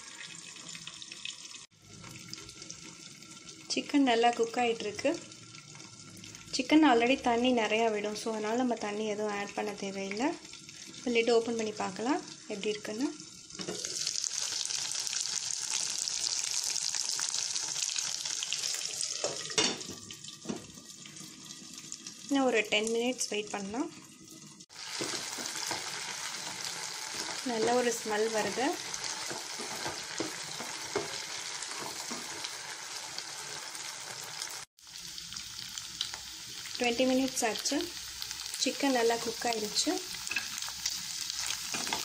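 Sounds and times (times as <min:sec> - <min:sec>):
chicken sizzling in butter: 0:09.6 - 0:42.0
spatula scraping and stirring: 0:24.7 - 0:32.8.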